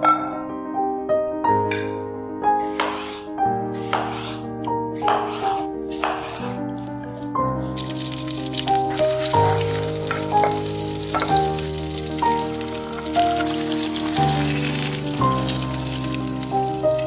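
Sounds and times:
background music: 0:00.0 - 0:17.0
food sizzling in frying pan: 0:07.6 - 0:17.0.

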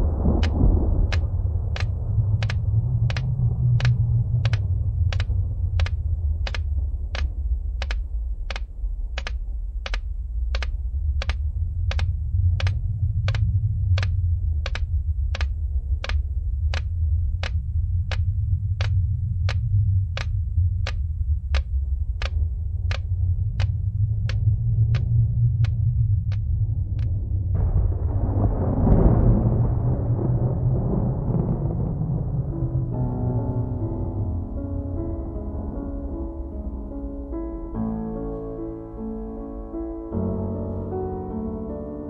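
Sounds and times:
sharp ticking clicks: 0:00.0 - 0:27.8
steady low rumble: 0:00.0 - 0:42.0.

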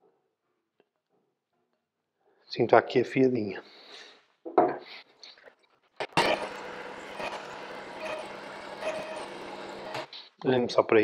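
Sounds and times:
belt sharpener motor running: 0:06.2 - 0:10.1.

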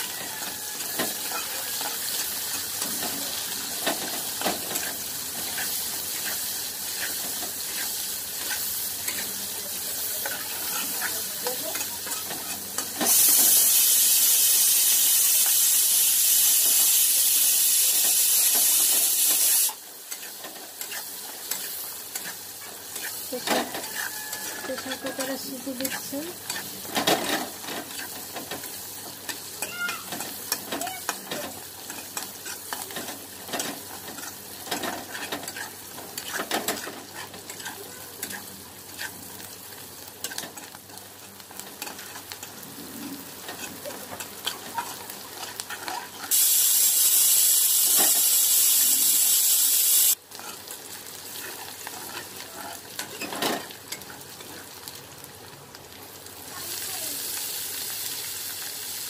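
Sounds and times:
onions sizzling in oil: 0:00.0 - 0:59.0
metal spatula scraping pan: 0:20.1 - 0:28.3, 0:31.8 - 0:39.1
pressure cooker steam whistle: 0:23.9 - 0:24.7, 0:46.3 - 0:50.2.

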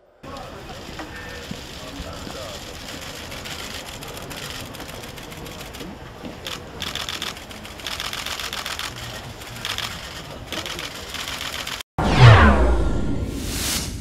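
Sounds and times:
low boom: 0:12.0 - 0:14.0
whoosh falling in pitch: 0:12.0 - 0:14.0.

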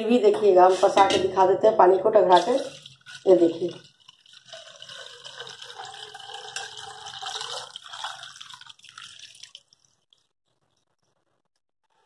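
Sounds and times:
water pouring into pot: 0:02.2 - 0:10.8.

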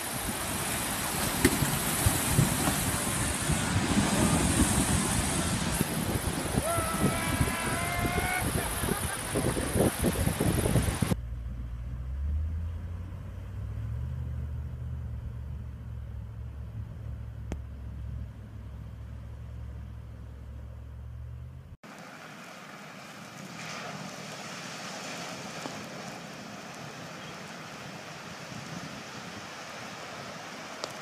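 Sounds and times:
steady hiss of wading: 0:00.0 - 0:11.2, 0:21.8 - 0:31.0
engine running low: 0:08.6 - 0:24.1.

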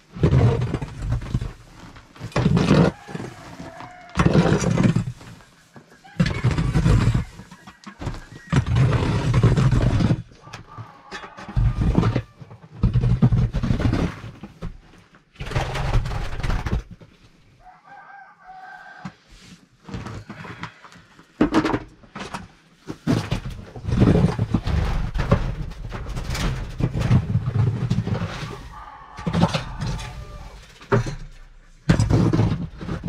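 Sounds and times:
chickens: 0:00.5 - 0:13.9, 0:23.3 - 0:31.7
rooster crowing: 0:02.8 - 0:04.4, 0:06.0 - 0:08.9, 0:10.4 - 0:12.4, 0:17.6 - 0:19.2, 0:28.2 - 0:30.7.

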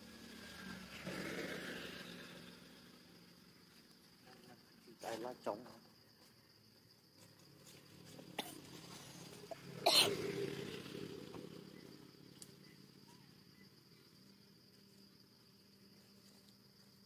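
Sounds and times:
insect chirring: 0:00.0 - 0:17.0
sharp cough-like burst: 0:09.8 - 0:10.2.

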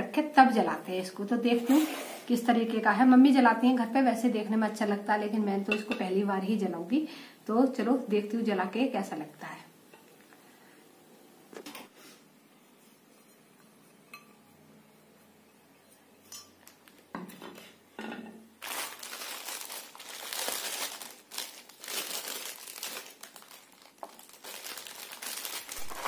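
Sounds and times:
plastic packet crinkling: 0:18.6 - 0:26.0.

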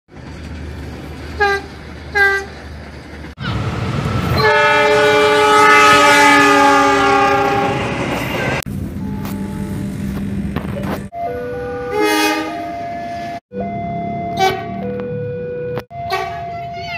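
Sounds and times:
train rumbling on rails: 0:00.1 - 0:15.2
distant train horn toots: 0:01.4 - 0:02.5, 0:04.4 - 0:09.6, 0:11.7 - 0:12.8, 0:14.3 - 0:14.9, 0:16.0 - 0:16.6
locomotive chord horn: 0:04.4 - 0:09.7, 0:11.2 - 0:14.9, 0:15.9 - 0:16.6.

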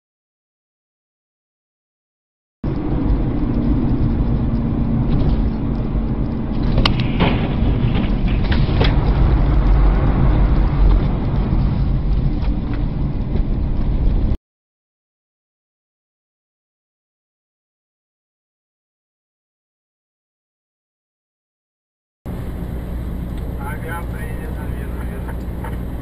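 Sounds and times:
car engine and road rumble: 0:02.6 - 0:14.4, 0:22.3 - 0:26.0.

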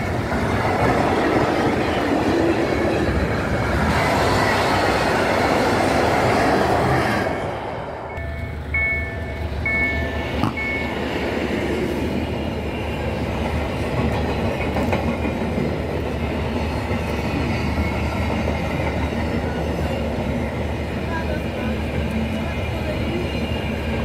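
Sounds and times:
freight train wheels rumbling: 0:00.0 - 0:24.0
crossing warning signal tones: 0:08.1 - 0:11.4.

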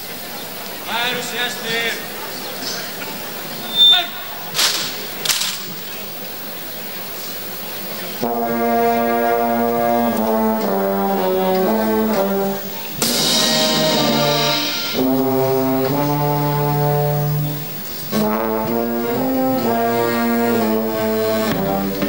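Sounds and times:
brass band playing a slow march: 0:07.0 - 0:22.0
percussion crash with deep drum: 0:13.0 - 0:16.2.

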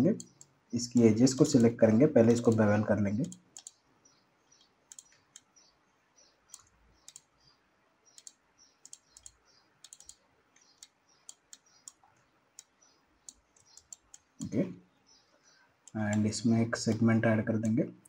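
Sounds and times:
mouse and keyboard clicking: 0:00.1 - 0:01.8, 0:02.4 - 0:03.8, 0:04.6 - 0:05.5, 0:06.5 - 0:07.4, 0:08.1 - 0:14.6.

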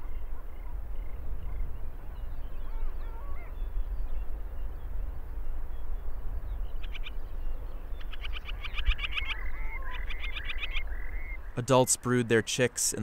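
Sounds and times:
wind rumbling on microphone: 0:00.0 - 0:11.6
faint whistled animal calls: 0:02.6 - 0:03.6.

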